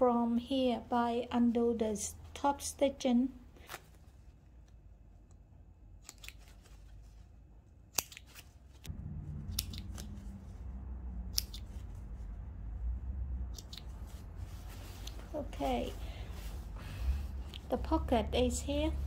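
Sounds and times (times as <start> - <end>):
low handling rumble: 8.9 - 19.0.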